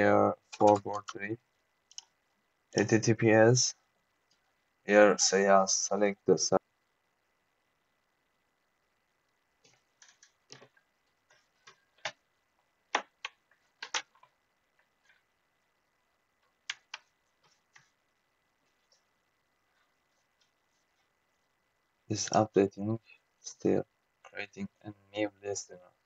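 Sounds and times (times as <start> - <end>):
computer mouse clicking: 0.5 - 1.2, 1.9 - 2.2, 9.6 - 12.2, 12.9 - 14.4, 16.6 - 18.0.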